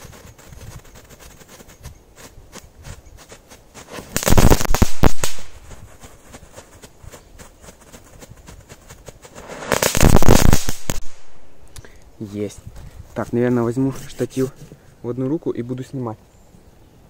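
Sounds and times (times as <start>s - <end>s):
firecracker fuses crackling: 3.7s - 6.4s, 9.2s - 11.8s
rapid firecracker bangs: 3.9s - 5.6s, 9.3s - 11.4s.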